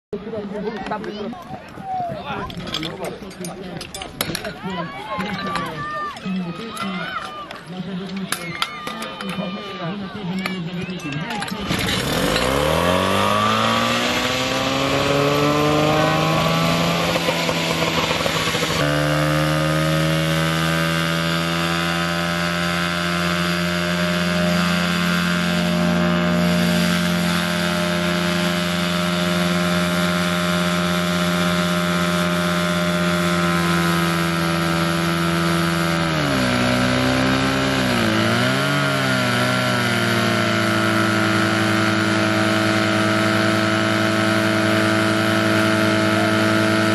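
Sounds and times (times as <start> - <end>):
small petrol engine running at high revs: 11.3 - 46.9.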